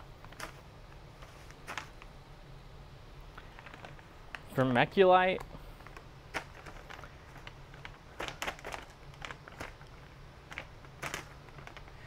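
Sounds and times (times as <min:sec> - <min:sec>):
faint low hum: 0:00.0 - 0:12.0
bag rustling and crinkling: 0:00.2 - 0:02.1, 0:03.4 - 0:04.7, 0:05.6 - 0:12.0.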